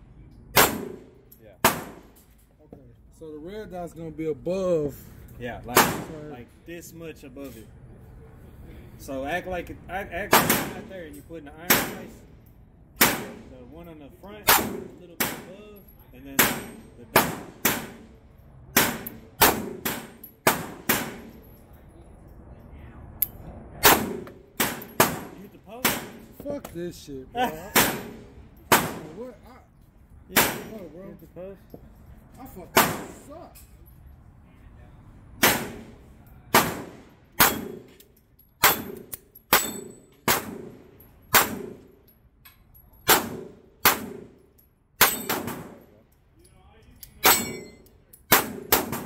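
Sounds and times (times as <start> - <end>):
pistol shots: 0.5 - 2.2, 10.3 - 10.9, 11.7 - 12.2, 13.0 - 13.5, 14.4 - 15.5, 16.4 - 21.4, 23.8 - 26.4, 27.7 - 29.2, 30.3 - 30.8, 32.8 - 33.2, 35.4 - 37.9, 38.6 - 41.8, 43.1 - 44.3, 45.0 - 45.8, 48.3 - 49.0
steel plates ringing: 39.5 - 40.2, 47.2 - 47.9.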